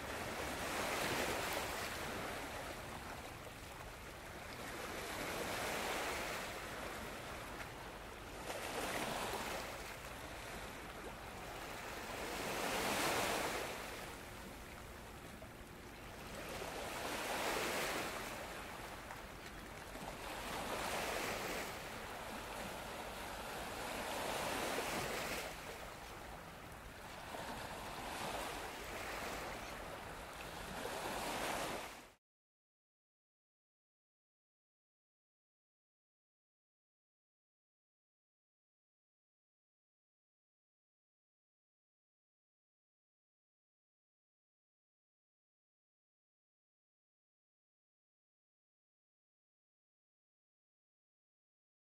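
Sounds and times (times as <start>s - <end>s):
waves breaking on shore: 0.0s - 32.2s.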